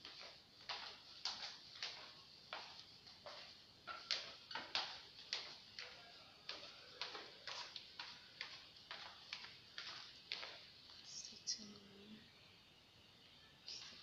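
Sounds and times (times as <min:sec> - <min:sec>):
footsteps on tiled stairs: 0:00.0 - 0:11.7.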